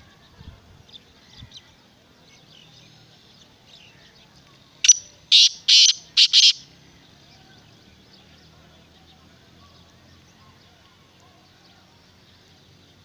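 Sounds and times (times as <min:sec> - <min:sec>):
faint small bird chirps: 0:03.8 - 0:06.6
francolin harsh calls: 0:04.8 - 0:06.7.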